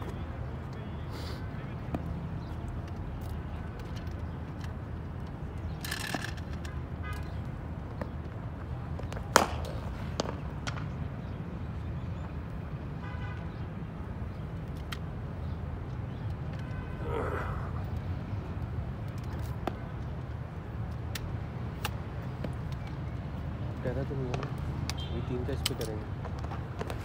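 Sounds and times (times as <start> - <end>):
traffic rumble: 0.0 - 27.0
cricket bat striking ball: 9.2 - 10.9.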